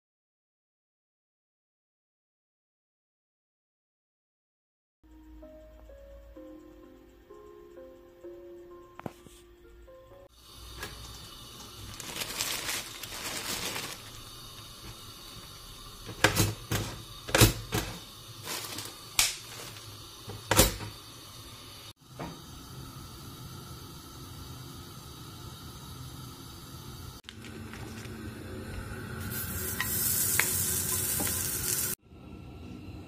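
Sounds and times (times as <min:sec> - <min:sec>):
toaster faint hum: 0:10.4 - 0:33.0
plastic bag rustling: 0:10.7 - 0:15.6, 0:17.6 - 0:20.3.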